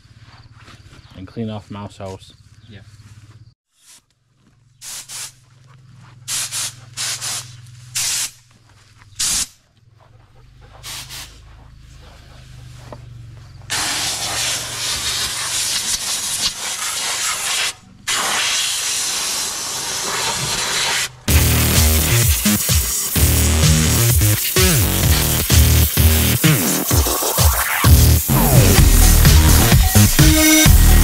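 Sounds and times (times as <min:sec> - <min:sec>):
compressed air blasts: 0:04.8 - 0:05.5, 0:06.3 - 0:08.4, 0:09.2 - 0:09.6, 0:10.8 - 0:11.5, 0:13.7 - 0:31.0.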